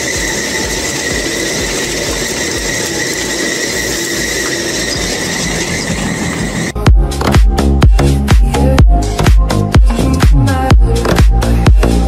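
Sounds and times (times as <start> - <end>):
high-pitched squeal: 0.0 - 6.8
truck engine and tyres rumbling: 0.0 - 12.0.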